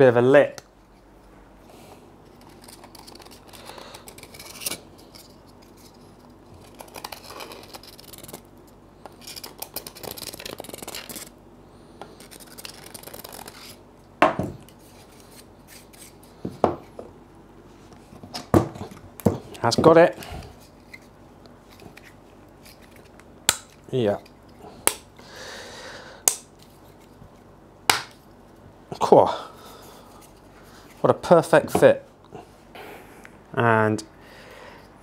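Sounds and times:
plastic parts rubbing and scraping: 2.2s - 8.5s.

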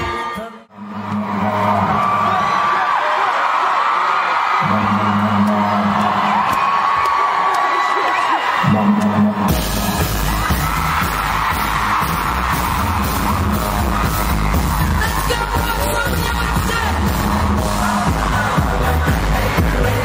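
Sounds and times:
crowd yelling: 0.0s - 20.0s
person singing: 4.6s - 6.3s, 8.6s - 9.8s, 14.9s - 20.0s
heavy bass and drum beat: 8.7s - 20.0s.

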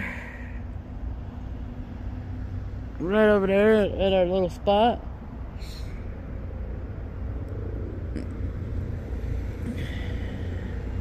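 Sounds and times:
distant engines rumbling: 0.0s - 11.0s.

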